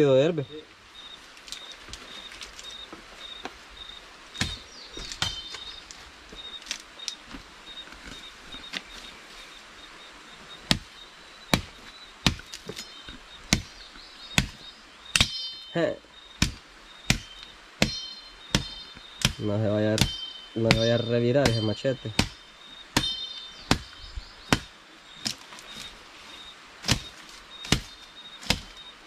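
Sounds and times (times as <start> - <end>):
machete chopping wood and brush: 4.4 - 5.7, 10.7 - 10.9, 11.5 - 13.7, 14.4 - 15.5, 16.4 - 26.0, 26.8 - 28.8.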